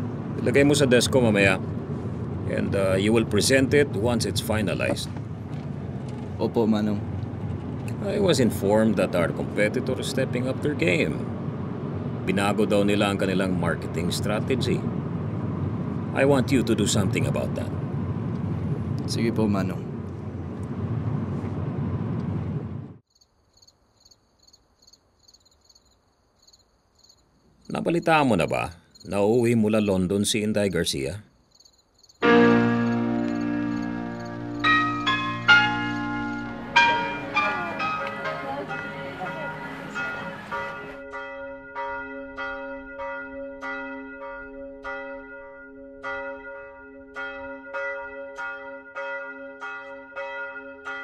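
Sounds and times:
church bells pealing: 0.0s - 5.1s, 5.8s - 14.9s, 32.2s - 51.0s
loud steady rumbling: 0.0s - 23.0s
crickets chirping: 23.0s - 29.4s, 31.3s - 38.0s.

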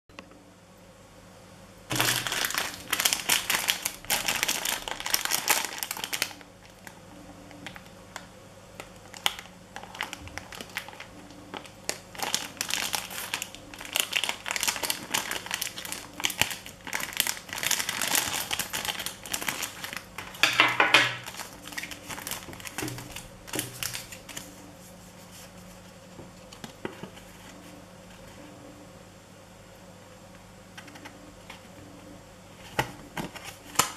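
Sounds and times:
plastic packaging crinkling: 1.9s - 24.7s, 32.6s - 33.9s
paper leaflet rustling: 9.1s - 28.4s.

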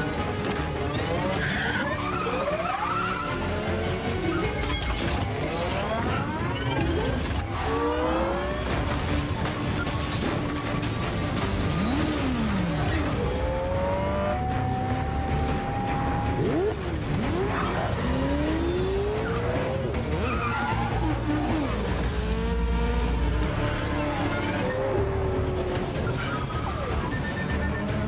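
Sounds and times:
action film score: 0.0s - 28.0s
car engine revving: 0.0s - 28.0s
tyre squeals: 20.2s - 21.8s.

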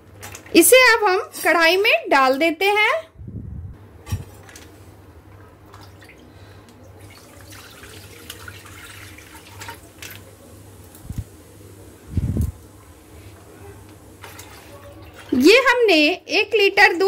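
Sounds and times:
milk pouring into pan: 7.0s - 10.2s.

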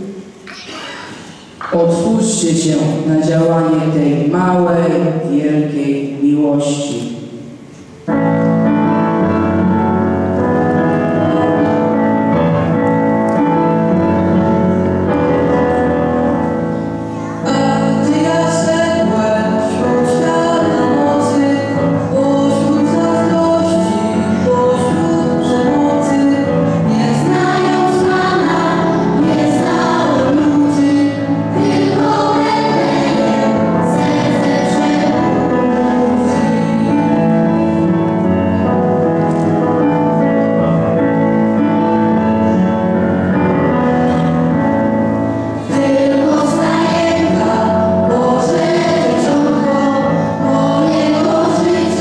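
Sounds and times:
instrumental accompaniment: 7.5s - 52.0s
choir singing: 17.4s - 38.5s, 45.6s - 52.0s.

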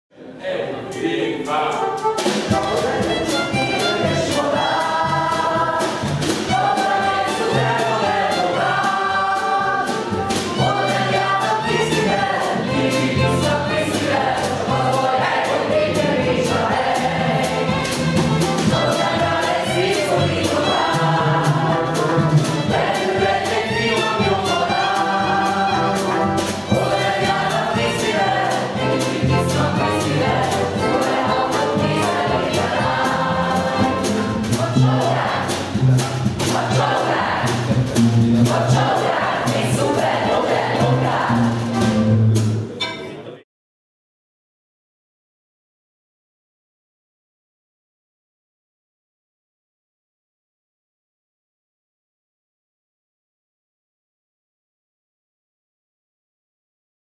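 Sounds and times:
voices singing together: 0.3s - 42.1s
small band playing: 0.8s - 43.4s.

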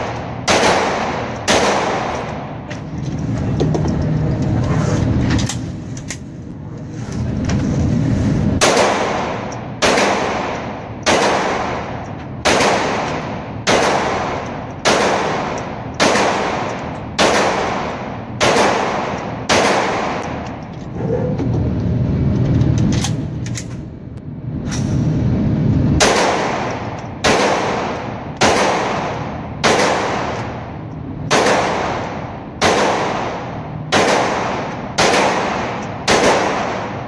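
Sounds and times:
pistol shots echoing: 0.0s - 2.6s, 8.6s - 20.5s, 26.0s - 37.0s
low rumble: 0.0s - 37.0s.

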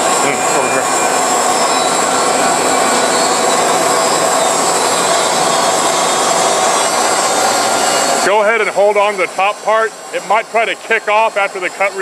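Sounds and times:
bandsaw cutting metal: 0.0s - 12.0s.

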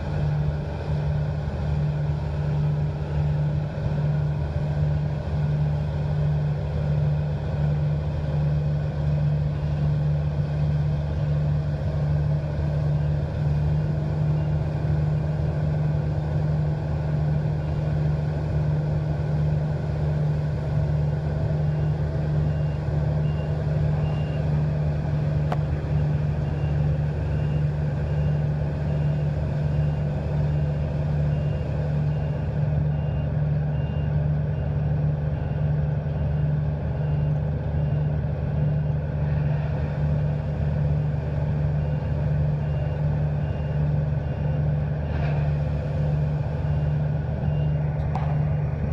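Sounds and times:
tractor engines running under load: 0.0s - 48.9s.

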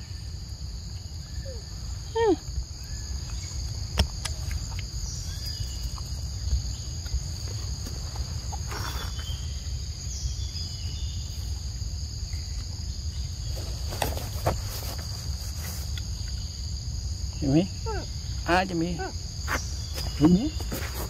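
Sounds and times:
insect chorus: 0.0s - 21.0s
monkey eating clicks: 3.3s - 6.2s.

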